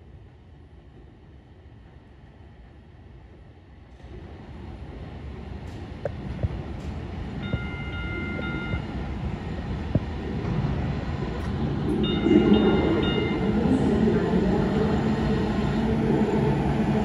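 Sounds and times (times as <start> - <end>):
train rumbling in tunnel: 0.0 - 17.0
sharp clicks from rails: 5.6 - 8.8.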